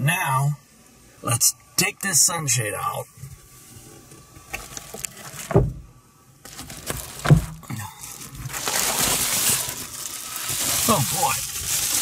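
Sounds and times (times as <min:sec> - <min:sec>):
dull thumps: 0:05.4 - 0:05.9, 0:06.6 - 0:07.8
foil sunshade rustling: 0:06.4 - 0:12.0.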